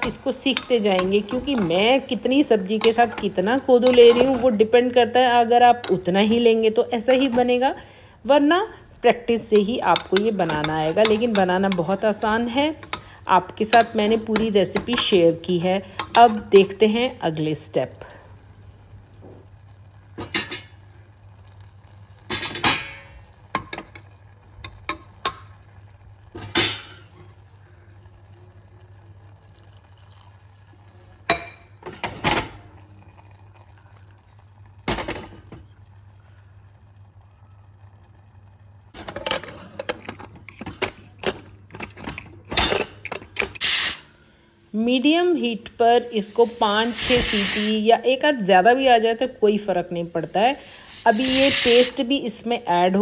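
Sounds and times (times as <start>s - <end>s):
spoon clinking on metal pot: 9.5s - 11.9s.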